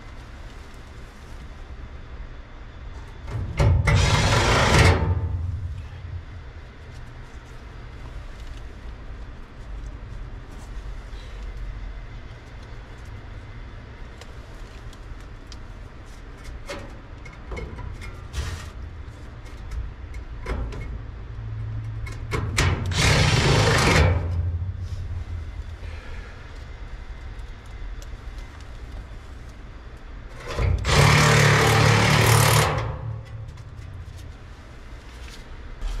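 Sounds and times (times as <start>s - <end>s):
low hum: 0.0s - 15.8s, 18.8s - 36.0s
brush scraping inside metal: 3.6s - 6.0s, 22.6s - 25.2s, 30.4s - 33.4s.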